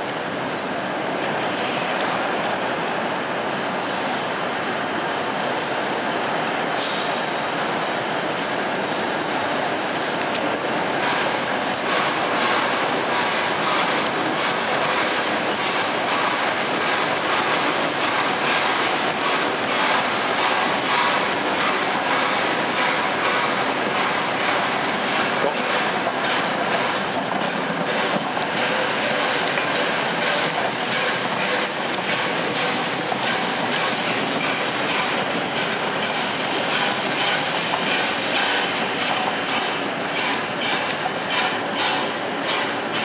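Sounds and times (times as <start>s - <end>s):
train wheels rumbling on rail: 0.0s - 43.0s
wheels clicking over rail joints: 10.2s - 43.0s
high squeal: 15.4s - 16.6s.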